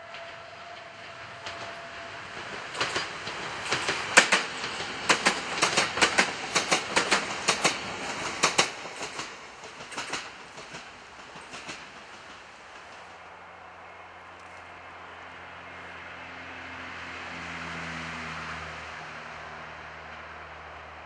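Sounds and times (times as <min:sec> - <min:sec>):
train wheels clacking: 0:00.0 - 0:13.2
steady rushing noise: 0:01.1 - 0:17.7.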